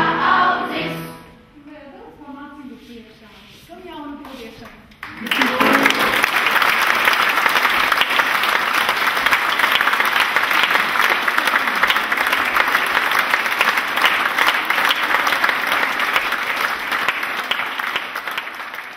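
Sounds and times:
audience applauding: 0:05.0 - 0:18.9.

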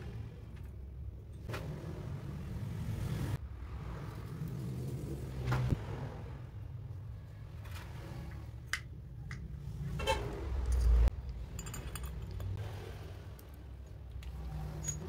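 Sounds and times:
small metal clicks and clinks: 0:10.6 - 0:12.6.

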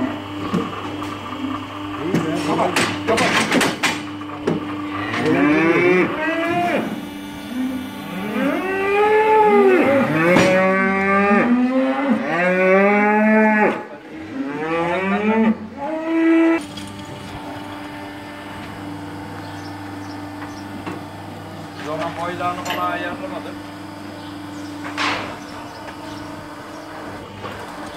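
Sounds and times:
cows mooing: 0:04.8 - 0:16.6.

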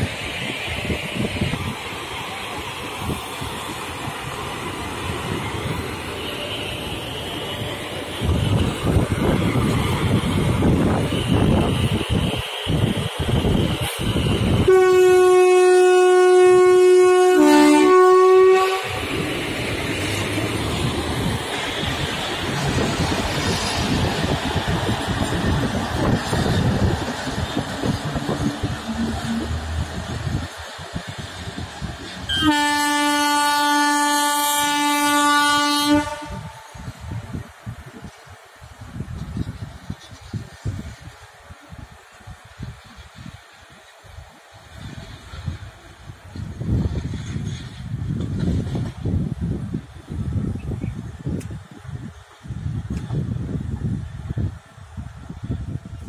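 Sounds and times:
locomotive rumbling past: 0:00.0 - 0:51.2
locomotive horn: 0:14.6 - 0:19.1, 0:32.3 - 0:36.8.

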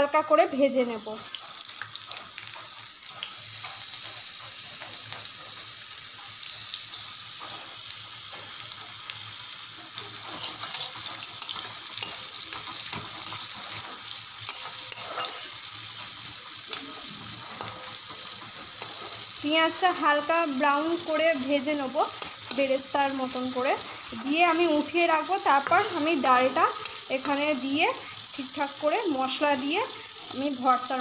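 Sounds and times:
onions sizzling in hot oil: 0:00.0 - 0:31.0
metal spatula scraping: 0:10.0 - 0:16.0.

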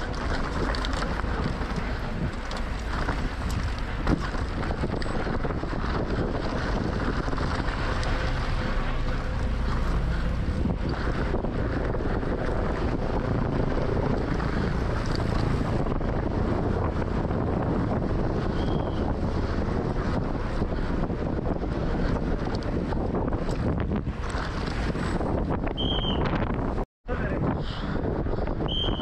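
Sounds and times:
small clicks and rattles: 0:00.0 - 0:05.9
tyres rushing on trail: 0:00.0 - 0:29.0
wind buffeting microphone: 0:00.0 - 0:29.0.

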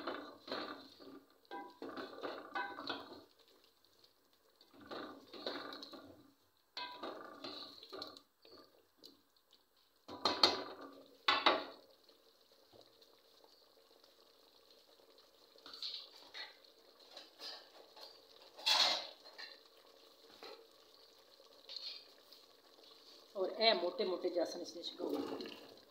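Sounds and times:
faint simmering: 0:00.0 - 0:25.9
spoon knocking against pot: 0:06.8 - 0:07.5, 0:10.1 - 0:11.8.

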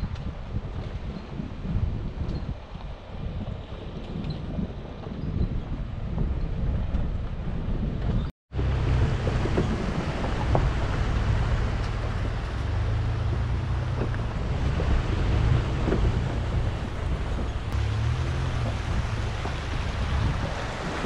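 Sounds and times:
low engine drone: 0:08.5 - 0:21.0.

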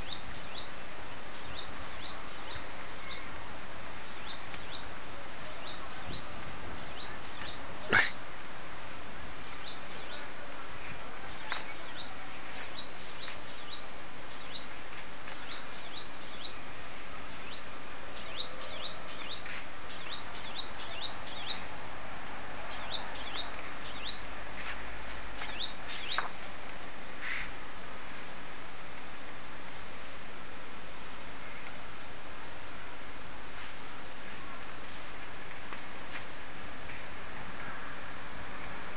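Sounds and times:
birds chirping: 0:00.0 - 0:08.4, 0:09.3 - 0:21.8, 0:22.6 - 0:26.6
steady background hiss: 0:00.0 - 0:38.9.

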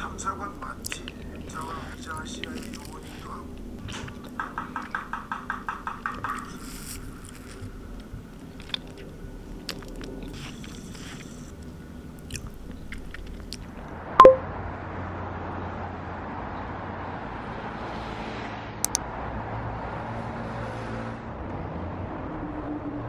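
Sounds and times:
street traffic hum: 0:00.0 - 0:23.0
rapid chewing: 0:00.1 - 0:13.8
sharp click with ringing tone: 0:14.2 - 0:14.4.

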